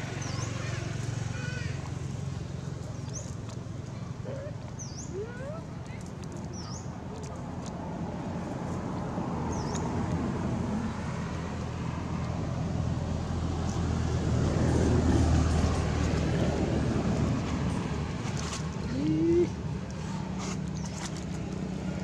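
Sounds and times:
passing vehicle engine rumble: 0.0s - 22.0s.

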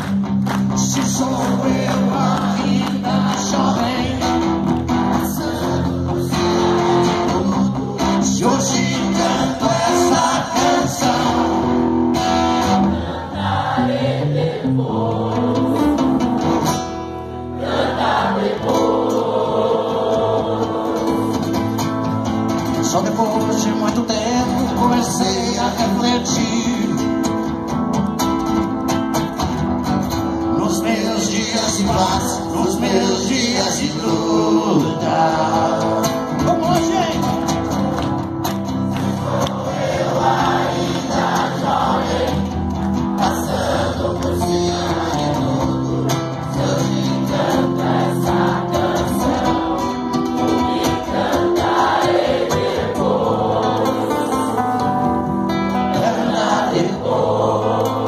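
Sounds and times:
acoustic guitar: 0.0s - 58.0s
man singing: 0.7s - 11.8s, 22.7s - 27.5s, 30.5s - 37.4s, 43.2s - 47.7s
voices singing along: 0.7s - 22.1s, 30.6s - 36.5s, 38.8s - 58.0s.

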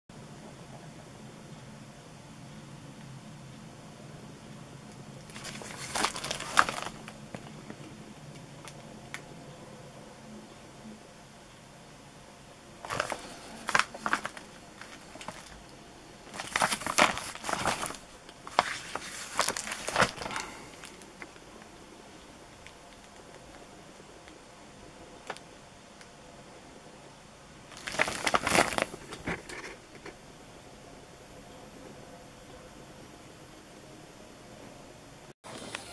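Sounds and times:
packaging crinkling and rustling: 5.2s - 7.9s, 12.8s - 21.3s, 27.7s - 30.2s.

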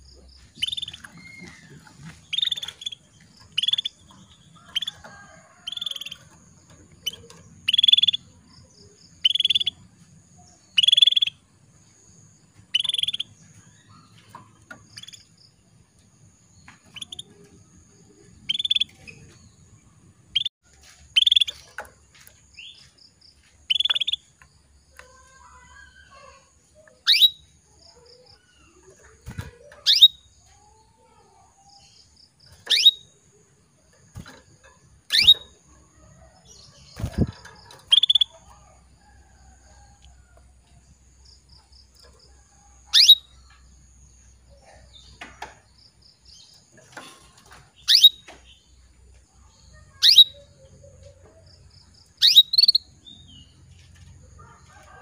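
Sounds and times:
canary call notes: 32.7s - 33.1s, 35.1s - 35.6s, 42.9s - 43.3s.

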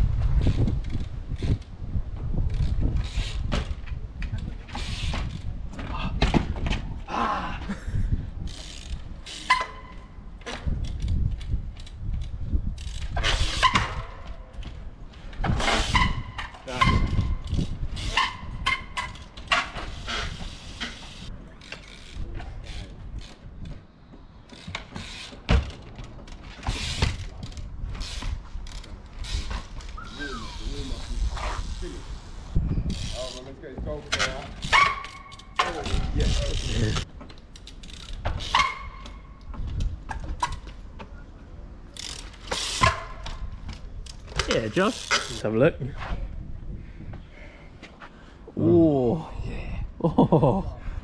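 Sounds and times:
wind rumble on microphone: 0.0s - 9.3s, 10.0s - 21.5s, 26.7s - 35.0s, 35.6s - 37.1s, 39.2s - 41.8s, 45.6s - 47.4s
bike tyres landing thuds: 4.7s - 7.0s, 24.5s - 27.3s
tyre squeals: 29.4s - 31.9s.

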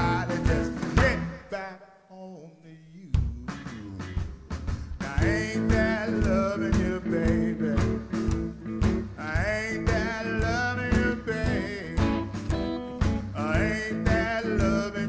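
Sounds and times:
double bass: 0.0s - 1.3s, 4.9s - 15.0s
electric guitar: 0.0s - 1.4s, 5.1s - 15.0s
drums: 0.0s - 1.6s, 3.0s - 15.0s.

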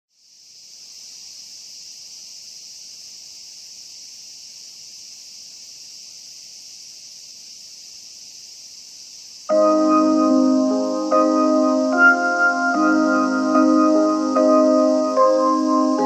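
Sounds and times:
insects chorus: 0.1s - 16.0s.

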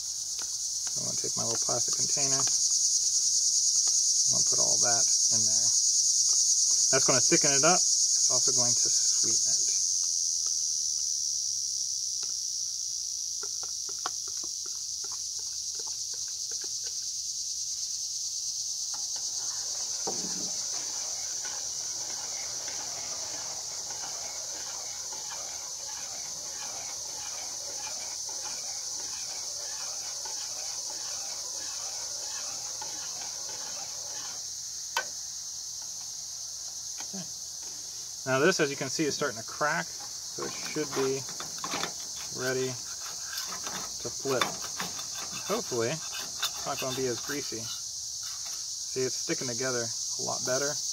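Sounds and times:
crickets trilling: 0.0s - 50.9s
spoon scraping while stirring: 18.9s - 34.5s, 40.4s - 47.5s.

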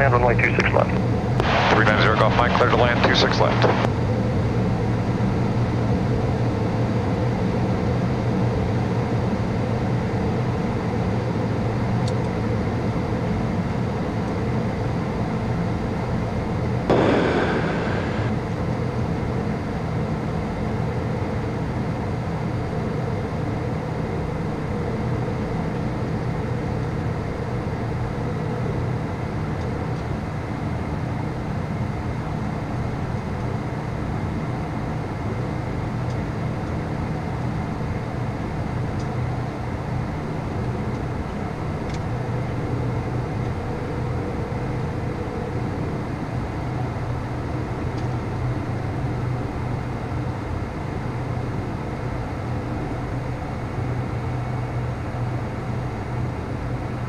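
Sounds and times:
jet engines humming: 0.0s - 7.6s, 16.9s - 19.2s
airflow rushing: 16.9s - 18.4s.

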